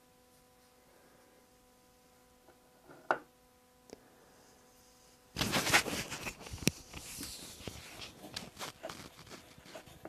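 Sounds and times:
rag rustling and rubbing: 5.4 - 10.0.

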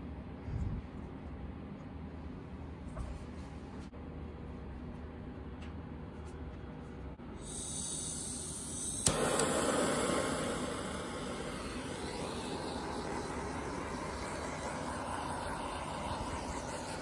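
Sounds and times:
gas hissing: 7.3 - 17.0
torch flame hissing: 7.4 - 17.0
torch igniter click: 8.0 - 16.7.

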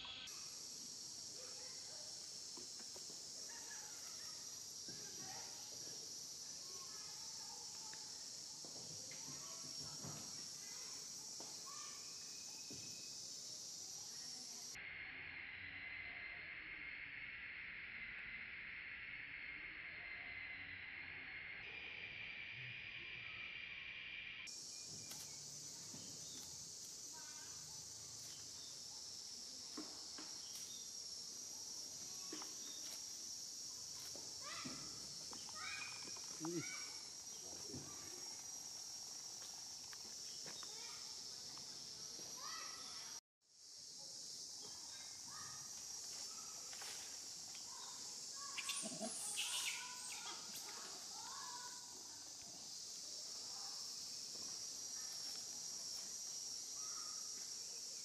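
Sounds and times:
high-pitched insect droning: 0.0 - 58.0
short chirping calls: 48.4 - 50.6.

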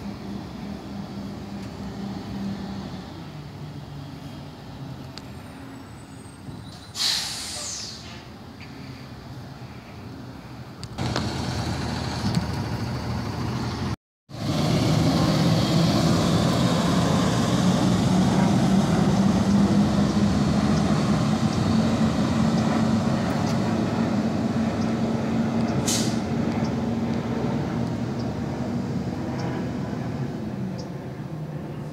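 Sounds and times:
truck diesel engine pulling away: 0.0 - 8.2, 11.0 - 31.9
brief hiss: 6.7 - 9.1.

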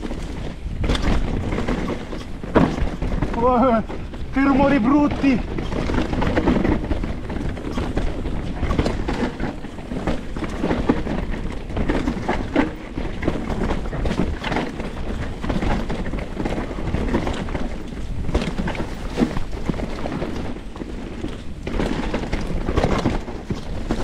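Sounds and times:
bike tyres rumbling over rocks: 0.0 - 24.0
wind on microphone: 0.0 - 24.0
person talking: 3.3 - 5.4.

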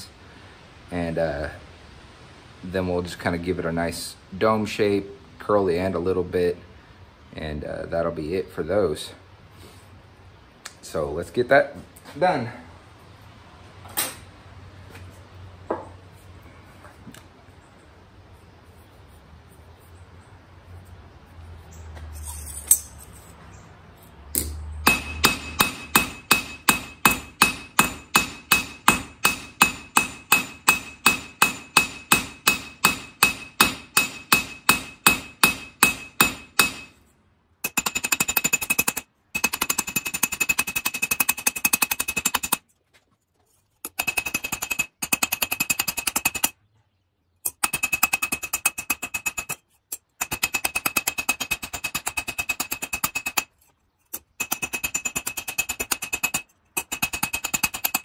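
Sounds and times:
hammer ringing on sheet steel: 24.8 - 37.0.

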